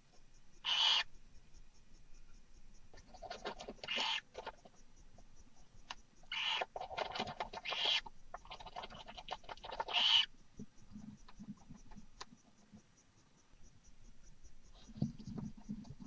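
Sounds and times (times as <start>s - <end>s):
owl hissing calls: 0.6s - 1.1s, 3.8s - 4.3s, 6.3s - 6.8s, 7.6s - 8.1s, 9.8s - 10.3s
faint scratching and shuffling: 1.1s - 16.0s.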